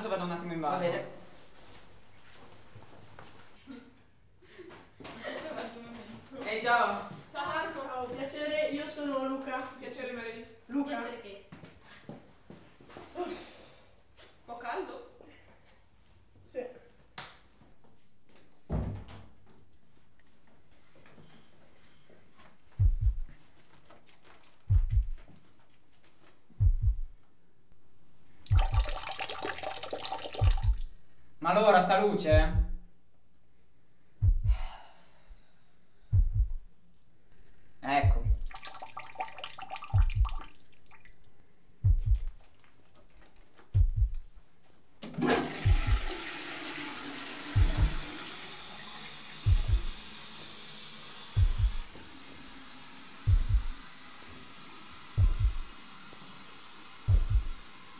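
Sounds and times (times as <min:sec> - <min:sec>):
heartbeat thumps: 0:22.7 - 0:23.6, 0:24.6 - 0:25.3, 0:26.5 - 0:27.2, 0:28.4 - 0:29.1, 0:30.4 - 0:31.0, 0:32.2 - 0:33.0, 0:34.1 - 0:35.4, 0:36.1 - 0:36.8, 0:38.0 - 0:38.7, 0:39.8 - 0:40.6, 0:41.8 - 0:42.4, 0:43.7 - 0:44.4, 0:45.6 - 0:46.2, 0:47.5 - 0:48.2, 0:49.4 - 0:50.0, 0:51.3 - 0:52.0, 0:53.2 - 0:53.9, 0:55.1 - 0:55.7, 0:57.1 - 0:57.6
toilet flushing: 0:28.4 - 0:30.9, 0:38.4 - 0:40.6, 0:45.0 - 0:57.9.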